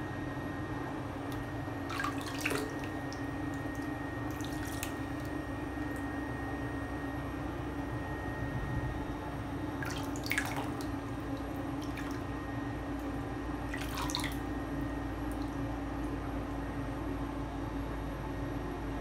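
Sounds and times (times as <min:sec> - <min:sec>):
low hum: 0:00.0 - 0:17.4
water dripping in bathtub: 0:01.3 - 0:06.1, 0:09.8 - 0:14.5, 0:15.2 - 0:15.7.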